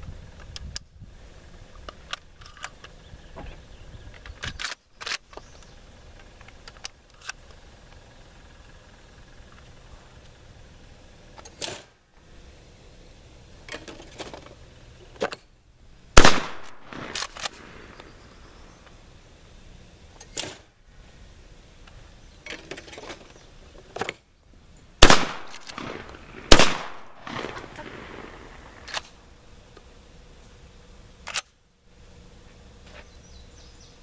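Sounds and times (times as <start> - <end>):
shotgun shots: 16.2 - 18.0, 25.0 - 29.2.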